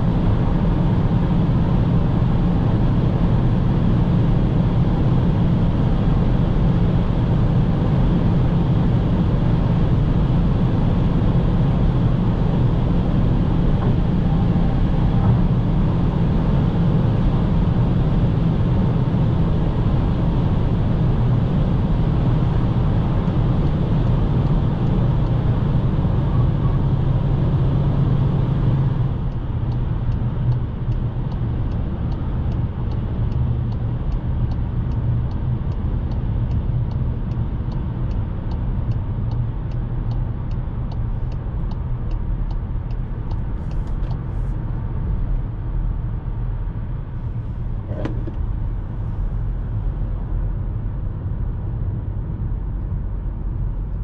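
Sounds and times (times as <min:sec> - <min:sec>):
car cabin road rumble: 0:00.0 - 0:54.0
turn signal ticking: 0:29.0 - 0:45.0.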